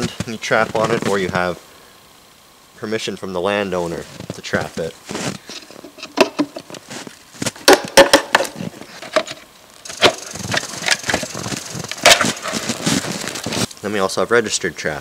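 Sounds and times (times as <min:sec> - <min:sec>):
wooden box cracking and creaking: 0:05.8 - 0:13.7.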